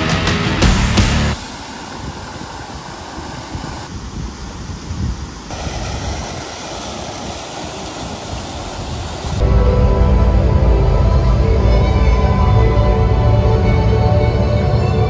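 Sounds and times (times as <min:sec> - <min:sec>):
fountain water splashing: 0:01.3 - 0:09.4.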